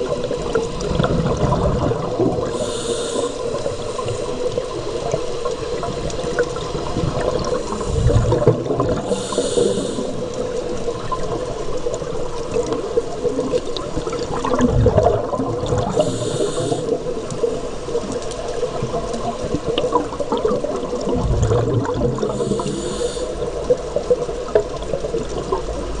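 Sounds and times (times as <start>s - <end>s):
faint crackle: 0.0s - 26.0s
regulator exhaled bubbles gurgling: 0.0s - 26.0s
regulator inhale hiss: 2.4s - 6.6s, 7.4s - 10.6s, 15.8s - 18.0s, 22.2s - 23.7s
steady hum: 15.8s - 17.7s, 22.1s - 23.6s.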